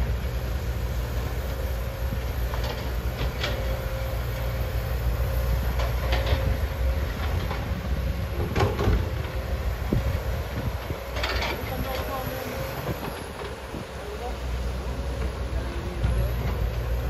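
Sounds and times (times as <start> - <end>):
excavator diesel engine rumble: 0.0 - 17.0.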